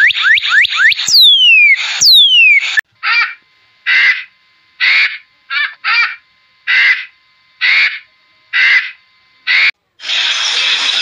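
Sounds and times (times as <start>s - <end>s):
eagle harsh barking calls: 3.0s - 9.7s.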